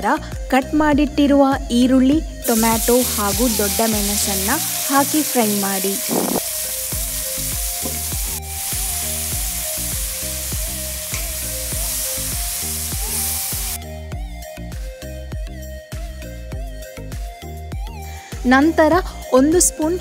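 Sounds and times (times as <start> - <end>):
background music: 0.0 - 20.0
vegetables sizzling in hot oil: 2.4 - 13.8.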